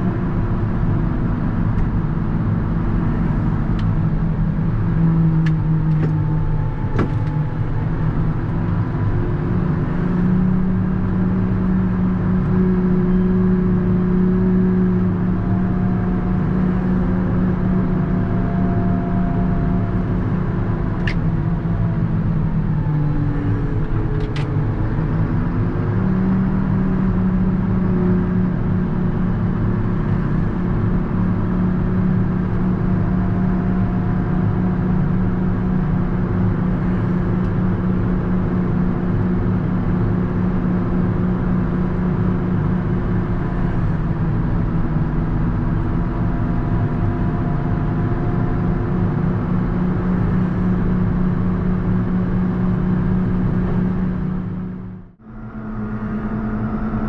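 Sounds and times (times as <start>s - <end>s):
tractor diesel engine running: 0.0s - 57.0s
faint whine: 52.7s - 57.0s.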